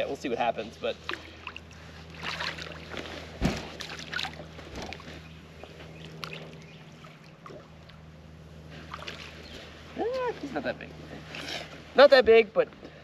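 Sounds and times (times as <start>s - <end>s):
steady low hum: 0.0s - 13.0s
fish splashing at water surface: 1.0s - 5.0s, 8.8s - 9.5s
sharp thump: 3.4s - 3.8s.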